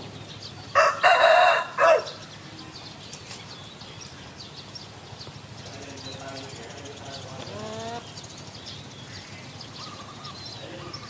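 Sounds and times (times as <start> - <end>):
rooster crowing: 0.7 - 2.2.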